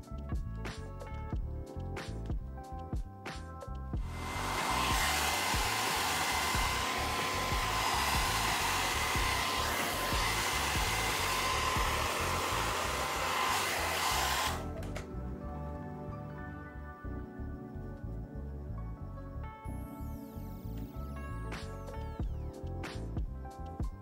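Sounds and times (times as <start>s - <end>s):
blow dryer running: 4.0s - 15.0s.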